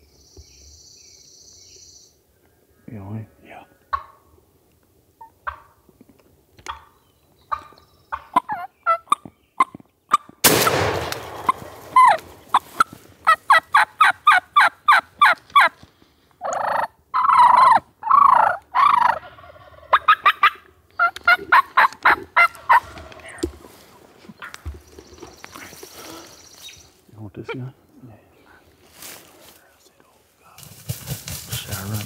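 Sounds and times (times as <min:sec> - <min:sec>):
wild turkeys calling: 0:03.2 - 0:04.5, 0:05.1 - 0:05.9, 0:06.6 - 0:15.8, 0:16.4 - 0:29.0
shotgun blast: 0:10.4 - 0:12.0.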